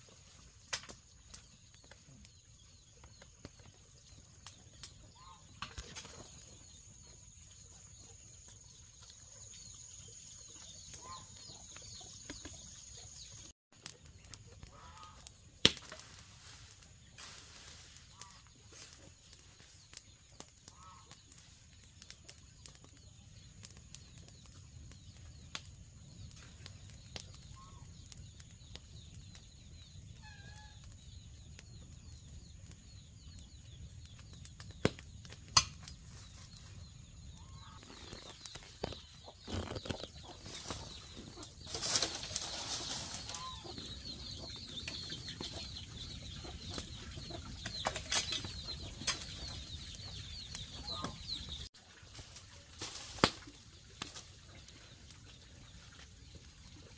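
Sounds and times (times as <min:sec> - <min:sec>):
chickens clucking: 0:37.4 - 0:51.7.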